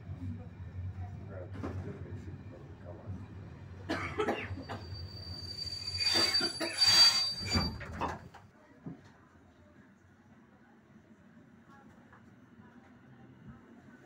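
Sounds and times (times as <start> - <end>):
train rumbling and clattering: 0.0 - 8.5
train wheels squealing on rails: 4.5 - 8.4.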